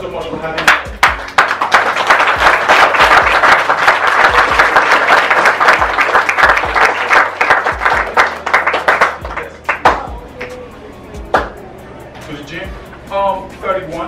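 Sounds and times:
audience applauding: 0:00.6 - 0:10.0.

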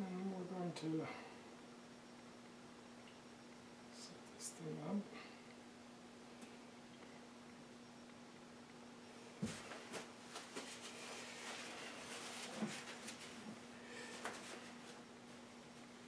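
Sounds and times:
steady low hum: 0:00.0 - 0:16.0
soft rubbing: 0:09.8 - 0:15.1.

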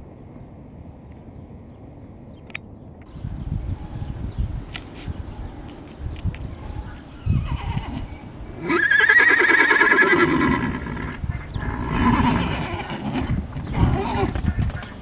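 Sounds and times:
horse whinnying: 0:07.2 - 0:14.4.

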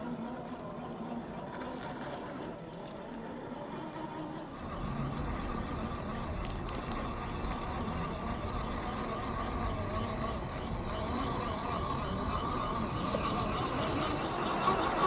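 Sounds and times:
electric toy car motor whining: 0:03.6 - 0:15.0.

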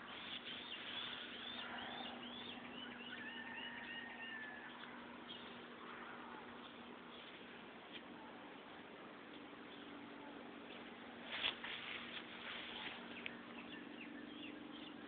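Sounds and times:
bird chirping: 0:00.0 - 0:07.5, 0:12.6 - 0:15.0.

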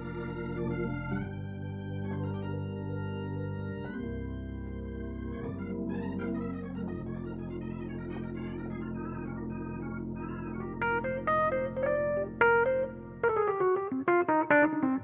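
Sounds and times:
organ playing: 0:00.0 - 0:15.0
struck piano-like keyboard notes: 0:00.0 - 0:15.0.

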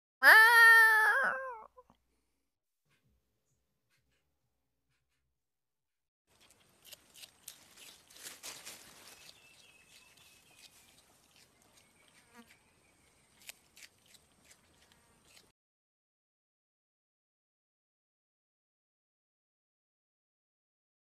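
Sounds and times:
rustles and clicks in grass: 0:06.3 - 0:12.6.

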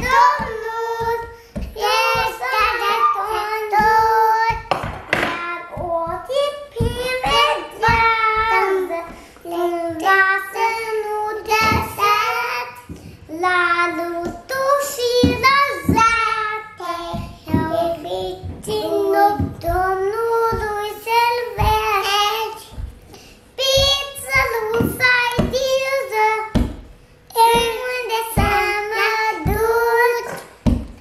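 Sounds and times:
children singing a hymn: 0:00.0 - 0:04.6.

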